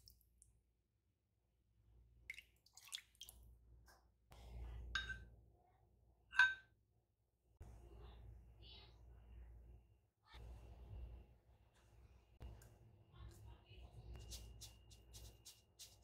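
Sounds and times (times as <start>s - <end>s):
metal ladle clinking on ceramic bowl: 5.0s - 5.2s, 6.3s - 6.7s.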